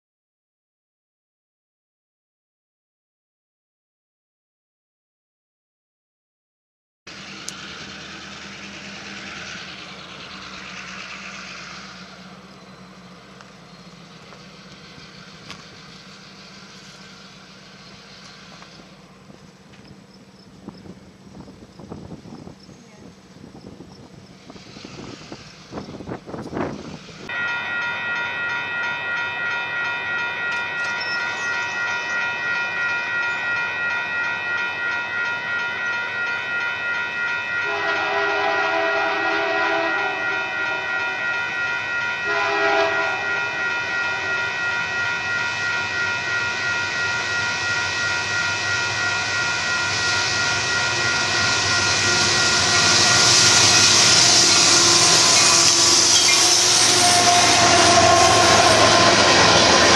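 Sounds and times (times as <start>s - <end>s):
crossing warning bell ringing: 7.1s - 59.9s
train rumble: 7.1s - 59.9s
locomotive horn: 37.6s - 41.4s, 42.2s - 44.6s, 50.9s - 59.9s.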